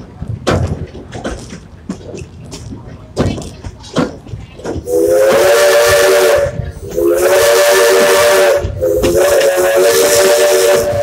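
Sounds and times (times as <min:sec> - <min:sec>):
steam hissing: 0:04.7 - 0:11.0
steam locomotive whistle: 0:04.9 - 0:11.0.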